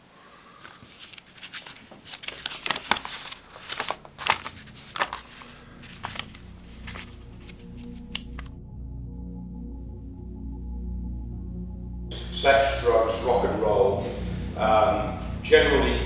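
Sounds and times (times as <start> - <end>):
low steady tones: 3.3 - 16.0.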